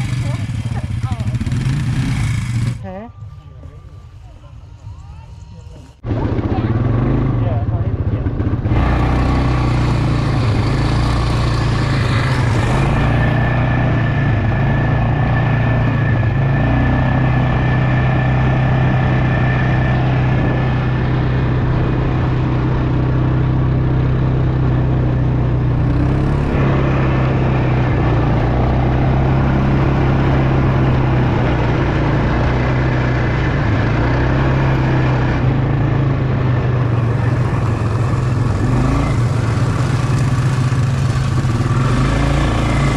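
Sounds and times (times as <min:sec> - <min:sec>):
quad bike engine running: 0:00.0 - 0:03.1, 0:06.0 - 0:42.9.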